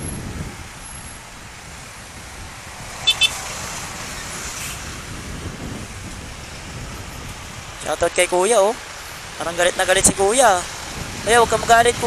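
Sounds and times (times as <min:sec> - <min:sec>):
road traffic noise: 0:00.0 - 0:12.0
car horn beeps: 0:03.0 - 0:03.4.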